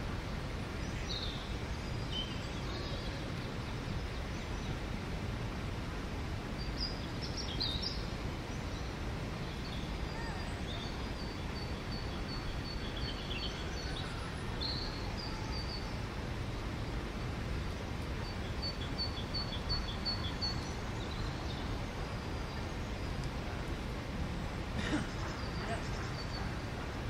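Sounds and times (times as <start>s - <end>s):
distant city rumble: 8.0s - 27.0s.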